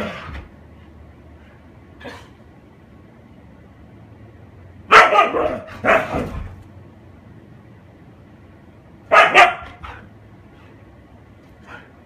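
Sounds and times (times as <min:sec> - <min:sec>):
dog barking: 0:04.9 - 0:06.3, 0:09.1 - 0:10.0.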